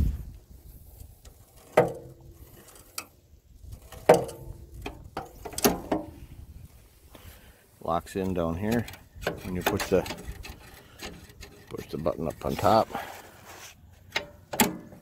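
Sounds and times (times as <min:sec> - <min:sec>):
metal lever clanking: 0:03.9 - 0:06.2, 0:08.7 - 0:11.8, 0:14.1 - 0:15.0.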